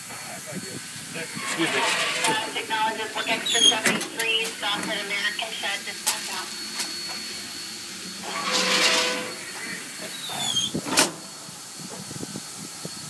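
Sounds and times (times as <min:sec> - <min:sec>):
steam locomotive hissing: 0:00.0 - 0:13.0
burst of steam hiss: 0:05.9 - 0:13.0.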